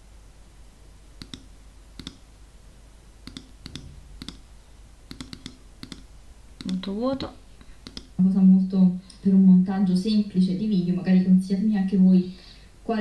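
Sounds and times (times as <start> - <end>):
mouse button clicks: 1.2 - 2.2, 3.2 - 4.4, 5.1 - 6.9, 7.8 - 8.2.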